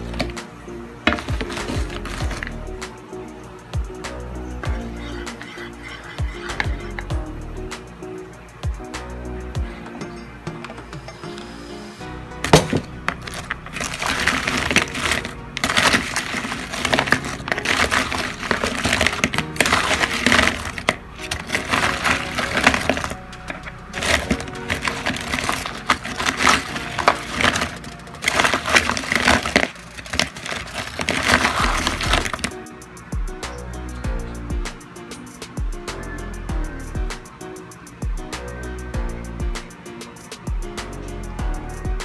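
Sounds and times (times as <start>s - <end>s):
background music: 0.0s - 42.0s
fried food crackling in a bowl: 12.5s - 32.5s.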